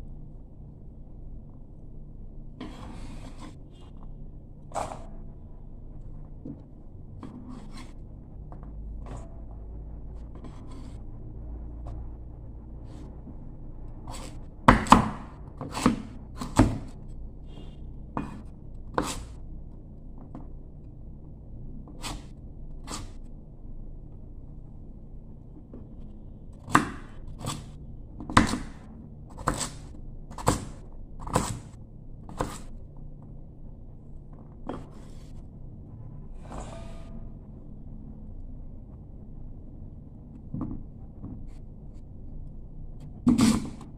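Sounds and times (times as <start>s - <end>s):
knife chopping on wooden board: 14.1s - 17.0s, 18.2s - 19.3s, 26.7s - 31.7s, 43.2s - 43.8s.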